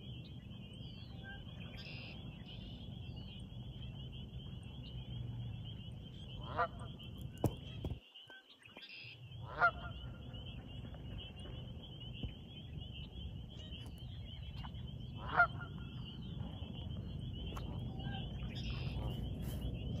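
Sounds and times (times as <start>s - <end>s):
geese honking: 6.2s - 7.9s, 9.4s - 11.9s, 14.6s - 19.6s
low rumble: 9.3s - 20.0s.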